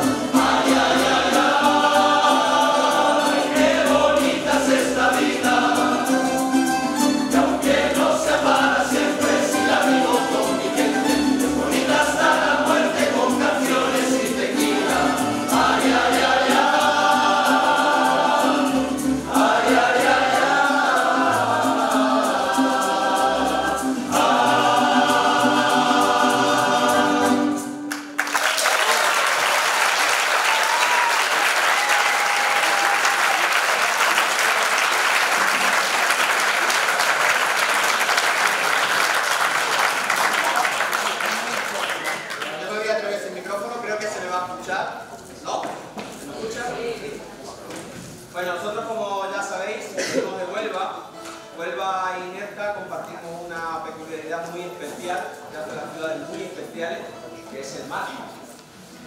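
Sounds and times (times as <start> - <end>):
male chorus singing: 0.0 - 6.6, 7.2 - 27.8
plucked guitars: 0.0 - 28.1.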